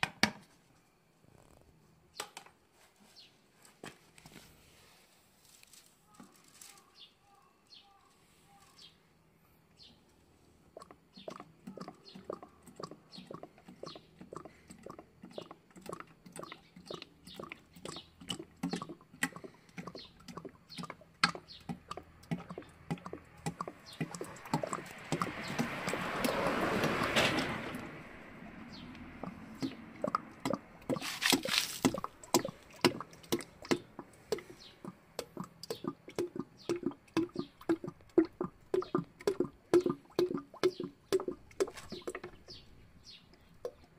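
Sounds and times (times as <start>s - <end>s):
oil glugging from a jug: 10.7s - 43.9s.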